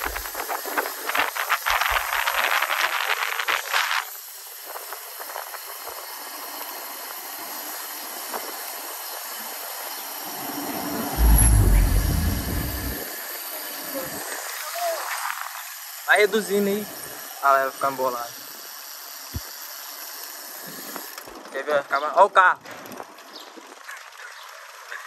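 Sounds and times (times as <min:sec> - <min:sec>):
bicycle tyres rolling hiss: 0:00.0 - 0:13.0, 0:14.5 - 0:21.5
deep rumble: 0:10.1 - 0:13.0.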